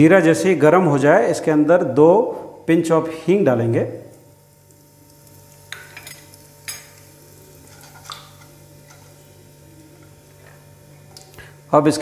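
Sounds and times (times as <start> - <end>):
seeds sizzling in oil: 4.2 - 11.7.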